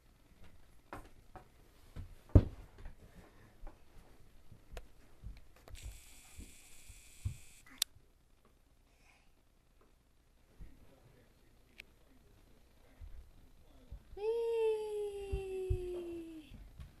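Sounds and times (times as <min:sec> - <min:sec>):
soft knocks and thumps of toys: 0:00.4 - 0:03.8
high whirring hiss: 0:05.7 - 0:07.8.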